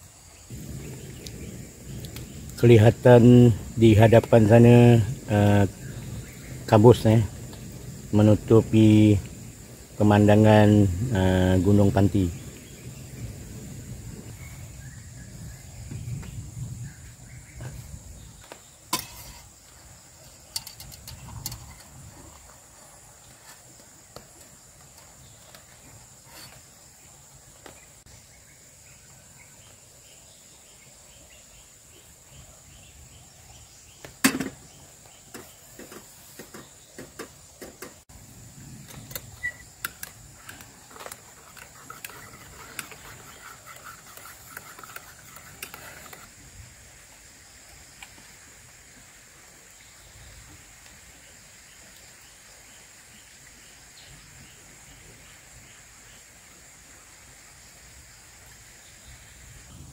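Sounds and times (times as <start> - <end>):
high insect drone: 0.0 - 59.9
stirrer scraping in ceramic mug: 40.9 - 46.3.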